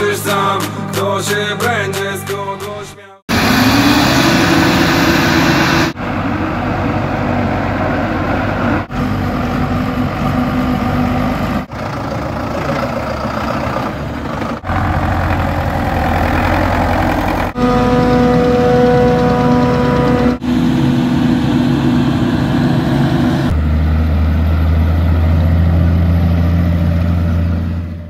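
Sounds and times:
farm tractor engines running: 3.3s - 28.0s
forage harvester engine running: 3.3s - 28.0s
steady machine hum: 17.5s - 23.6s.

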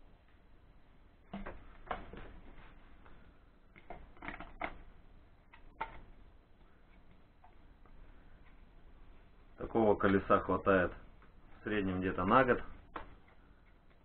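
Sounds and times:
plastic clicks and scrapes: 3.8s - 4.8s.

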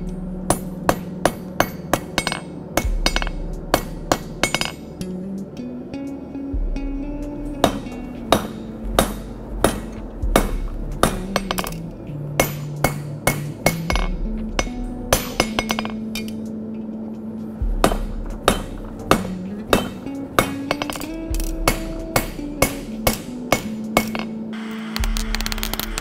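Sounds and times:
background music: 0.0s - 26.0s
hammer striking anvil: 0.5s - 4.9s, 7.6s - 16.4s, 17.8s - 24.4s.

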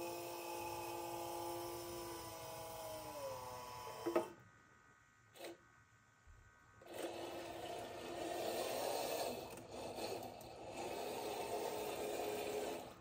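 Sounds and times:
small electric motor whining: 0.0s - 4.3s, 6.9s - 13.0s
toy motor and gears whirring: 6.9s - 13.0s.

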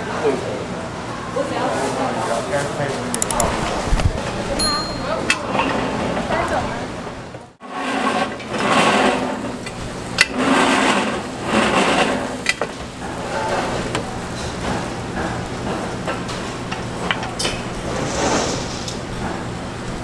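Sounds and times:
metal clinks: 4.6s - 5.4s
batter sizzling in a hot mould: 7.6s - 20.0s.

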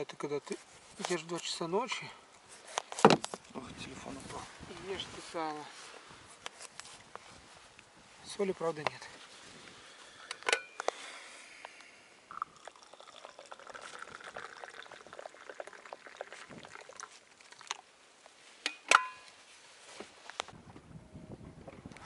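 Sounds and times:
liquid pouring into metal cup: 12.3s - 17.8s.

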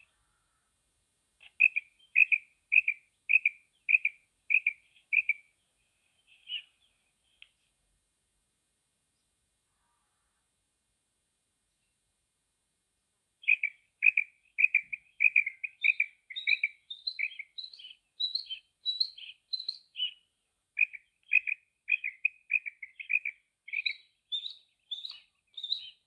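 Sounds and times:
quail calling: 1.4s - 5.4s, 13.4s - 20.2s, 20.8s - 26.0s.

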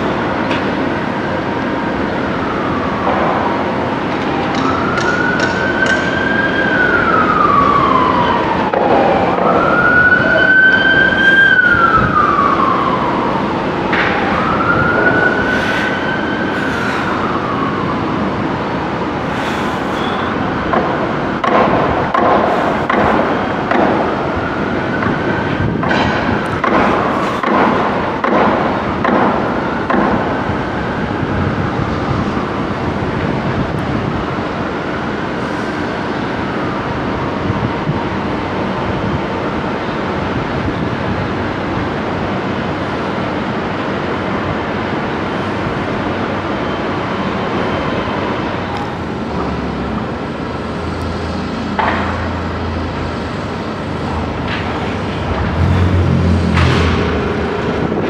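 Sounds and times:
siren wailing: 1.7s - 19.4s, 20.0s - 27.2s.

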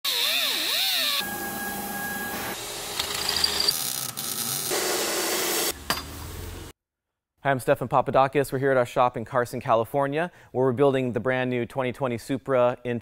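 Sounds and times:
power tools: 0.1s - 6.7s
disc grinder whining against steel: 1.2s - 5.8s.

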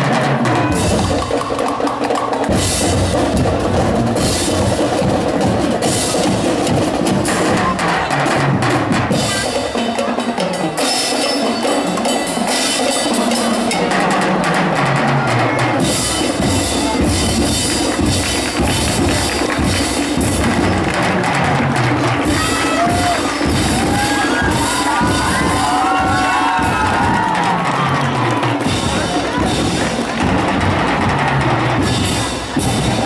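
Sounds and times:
drums: 0.0s - 33.0s
mallet percussion: 0.0s - 33.0s
marching band playing: 0.0s - 33.0s.

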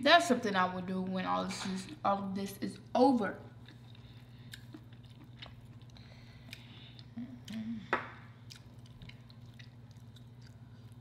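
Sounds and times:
steady low hum: 0.0s - 11.0s
wet chewing: 3.6s - 7.6s, 8.4s - 11.0s
low hum of a voice: 7.1s - 8.2s.

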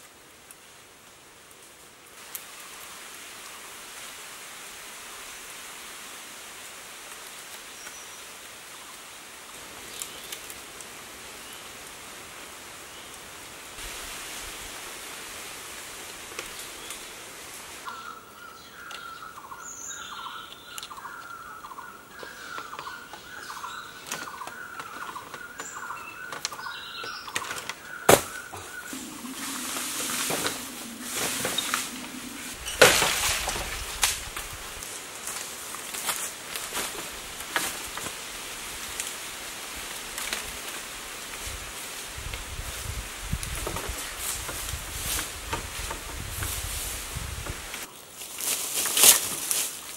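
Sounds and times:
forest ambience hiss: 0.0s - 49.9s
bird chirping: 17.9s - 32.8s.

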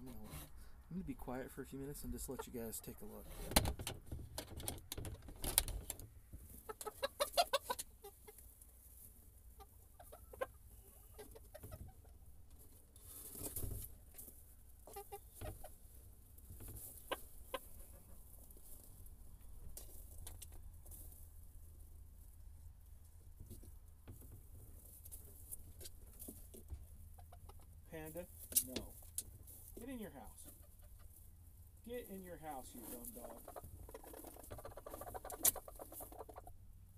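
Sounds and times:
chickens clucking: 1.8s - 3.4s, 6.4s - 12.6s, 14.5s - 18.6s, 24.9s - 28.2s, 28.8s - 31.4s, 32.0s - 36.6s.

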